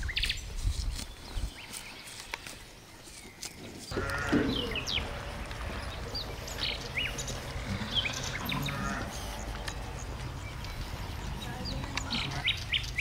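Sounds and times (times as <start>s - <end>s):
small birds chirping: 0.0s - 13.0s
farm animal bleating: 3.9s - 12.5s.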